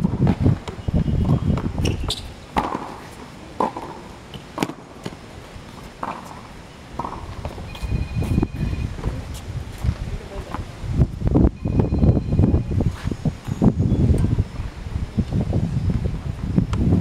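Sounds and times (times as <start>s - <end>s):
tennis ball pops: 3.6s - 5.2s.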